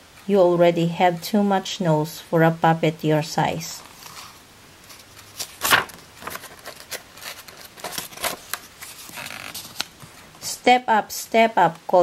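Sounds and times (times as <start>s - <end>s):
book pages rustling: 3.8s - 10.4s.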